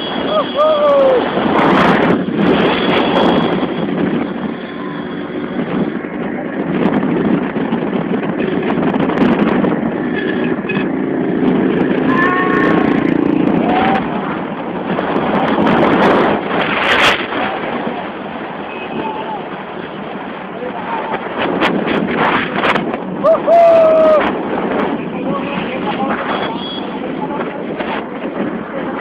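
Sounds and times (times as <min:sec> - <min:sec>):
wind rushing on microphone: 0:00.0 - 0:29.0.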